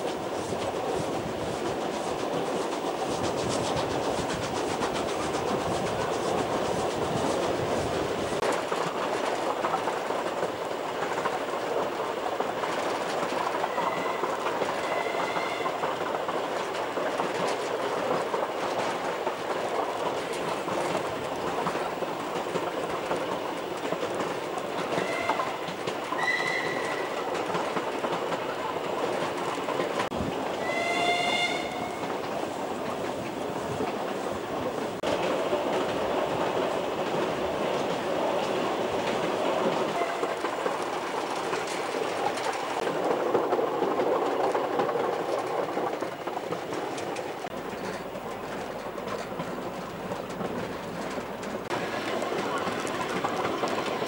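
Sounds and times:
train rumble with wheel clatter: 0.0 - 54.0
short high wheel squeals: 13.7 - 15.7, 26.2 - 27.2.

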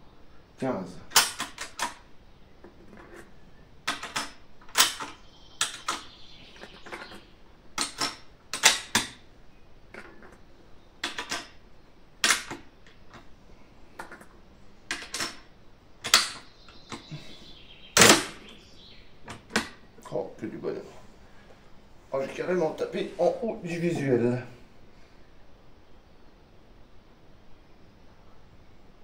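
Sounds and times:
rifle bolt metallic clicks: 1.1 - 2.0.

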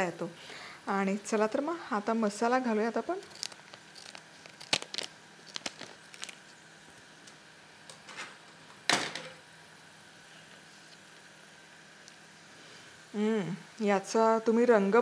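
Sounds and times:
scissors snipping foil packet: 3.1 - 6.5
packet rustling: 3.2 - 6.6.

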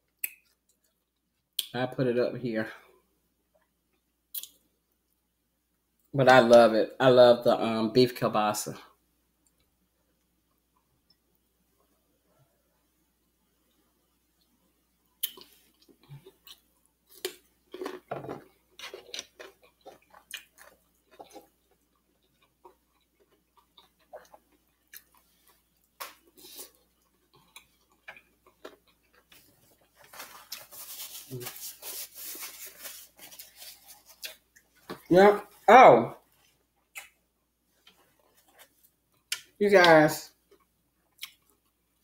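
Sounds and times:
chewing cucumber: 15.2 - 29.9, 40.4 - 42.0
paper napkin rustling: 29.4 - 34.4.

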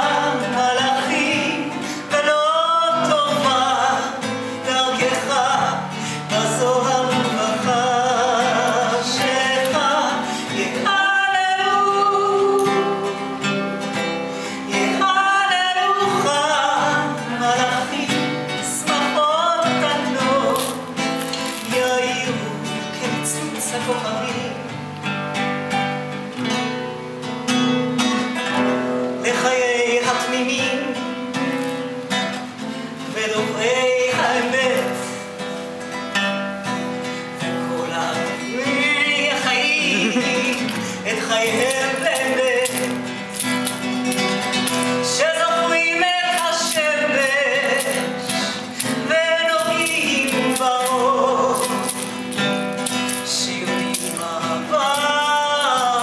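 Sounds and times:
woman singing: 0.0 - 13.8, 14.6 - 24.8, 28.2 - 31.1, 33.0 - 35.2, 37.4 - 56.0
plucked classical guitar: 0.0 - 56.0.

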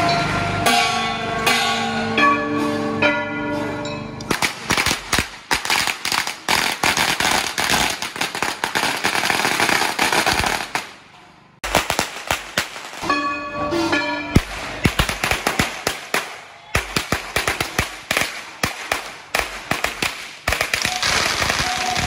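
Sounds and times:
gong ringing: 0.0 - 4.2, 13.0 - 14.4
firecrackers cracking: 4.3 - 13.2, 14.4 - 22.0.

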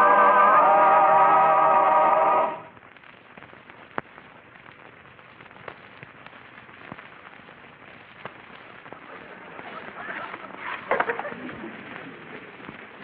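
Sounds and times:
old film surface hiss: 0.0 - 13.0
film crackle clicks and pops: 2.7 - 13.0.

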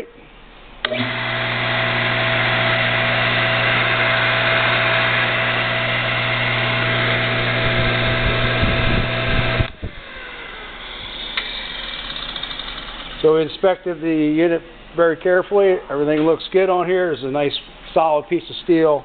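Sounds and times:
grinder motor humming and whining: 0.8 - 13.2.

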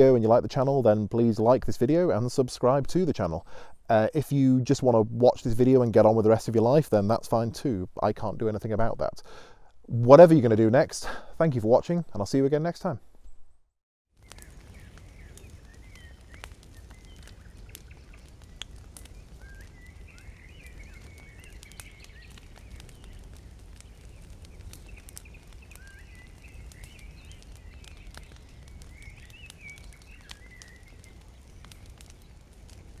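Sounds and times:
twig fire crackling: 0.0 - 11.6, 14.1 - 33.0
birds singing: 14.2 - 33.0.

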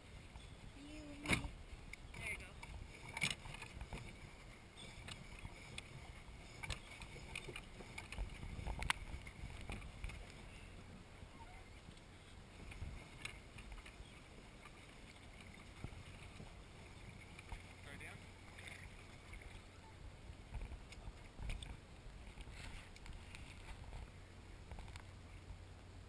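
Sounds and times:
water lapping against plastic hull: 0.1 - 25.6.

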